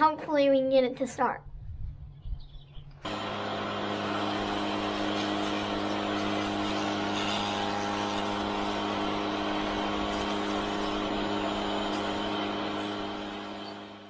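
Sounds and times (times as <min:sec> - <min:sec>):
pressure washer running: 0:03.1 - 0:14.0
water spray blasting: 0:03.1 - 0:14.0.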